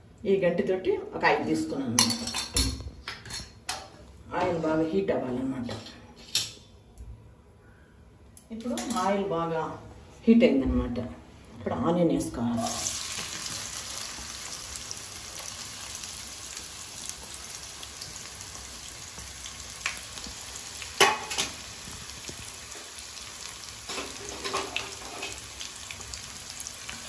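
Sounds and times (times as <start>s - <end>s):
onion sizzling in oil: 12.6s - 27.0s.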